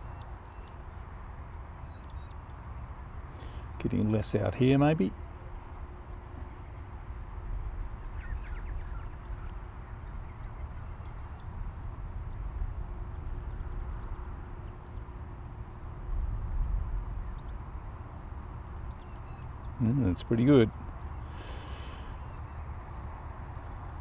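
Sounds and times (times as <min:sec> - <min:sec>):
bird chirps: 0:00.0 - 0:00.8, 0:01.8 - 0:02.6, 0:07.9 - 0:11.6, 0:17.2 - 0:22.8
wind rumbling on microphone: 0:00.0 - 0:24.0.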